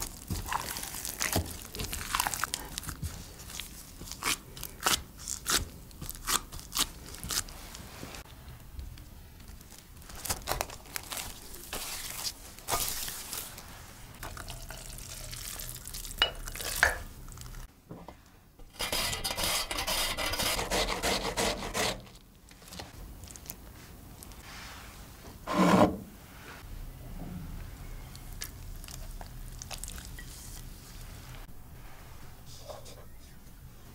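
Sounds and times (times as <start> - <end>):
rasping and rubbing: 18.7 - 22.1.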